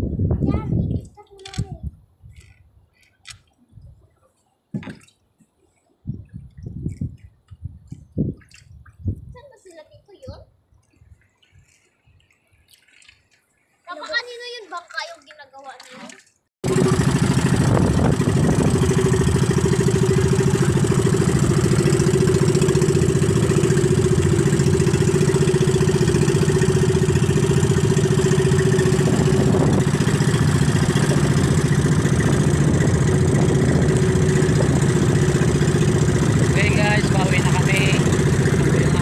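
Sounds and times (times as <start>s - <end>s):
boat engine droning: 16.6s - 39.0s.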